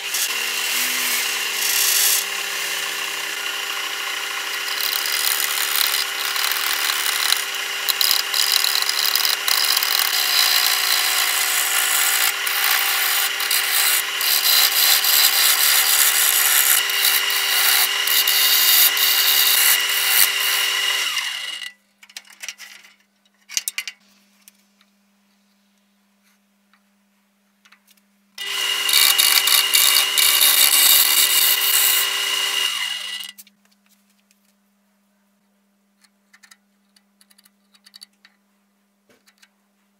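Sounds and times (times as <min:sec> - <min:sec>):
wood shaving hiss on lathe: 0:00.0 - 0:21.2, 0:28.4 - 0:33.2
lathe motor hum: 0:00.0 - 0:21.6, 0:28.4 - 0:33.3.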